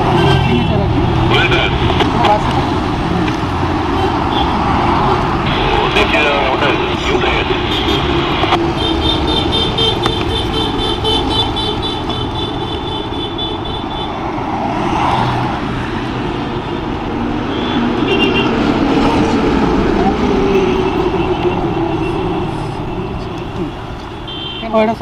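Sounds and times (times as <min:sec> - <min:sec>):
vehicle horn: 0:00.0 - 0:00.8, 0:03.9 - 0:04.6, 0:05.4 - 0:06.0, 0:06.7 - 0:14.2, 0:17.5 - 0:18.6, 0:20.6 - 0:25.0
road traffic passing: 0:00.0 - 0:25.0.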